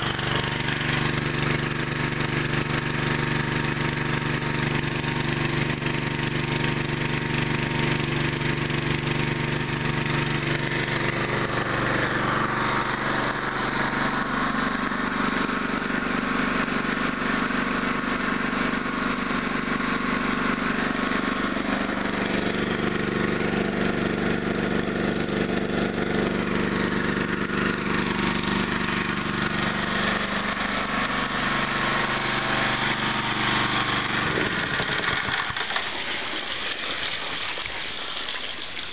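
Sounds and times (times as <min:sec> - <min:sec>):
small engine water pump running: 0:00.0 - 0:38.9
water rushing and pouring: 0:34.9 - 0:38.9.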